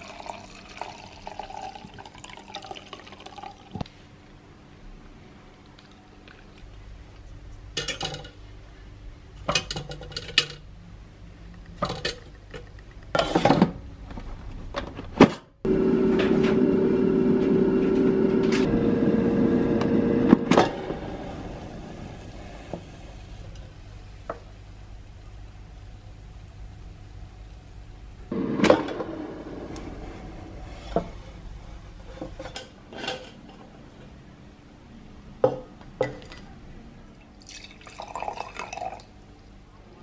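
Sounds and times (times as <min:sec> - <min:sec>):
air fryer fan humming: 0:15.7 - 0:32.8.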